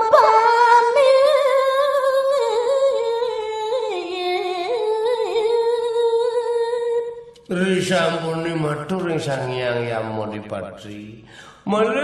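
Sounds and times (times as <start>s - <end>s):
woman singing unaccompanied: 0.0s - 7.2s.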